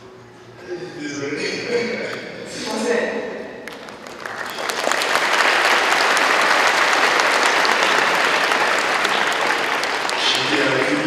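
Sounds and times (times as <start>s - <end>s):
crowd applauding: 3.6s - 11.0s.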